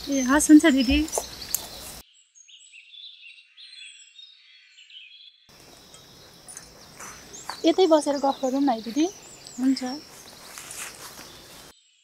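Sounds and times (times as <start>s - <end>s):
faint outdoor ambience: 0.0s - 2.0s, 5.5s - 11.7s
high chirping calls: 0.0s - 11.7s.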